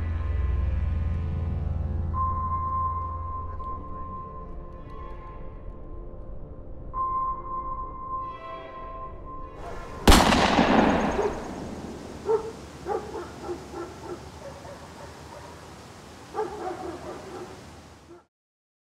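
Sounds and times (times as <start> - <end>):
gunshot with echo: 9.7 - 12.6
dog barking: 11.1 - 11.5, 12.1 - 15.7, 16.3 - 18.3.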